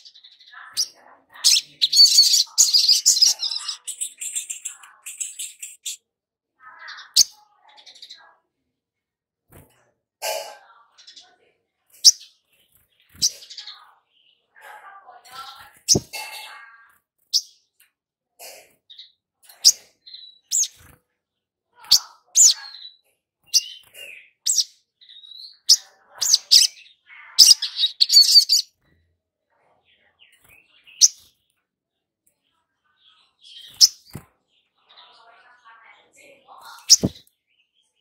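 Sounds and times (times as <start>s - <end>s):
bird chirping: 0.0s - 6.0s, 10.9s - 14.5s, 15.4s - 16.4s, 21.9s - 28.9s, 32.4s - 35.4s, 36.5s - 38.0s
bird chattering: 0.6s - 6.0s, 36.7s - 37.2s.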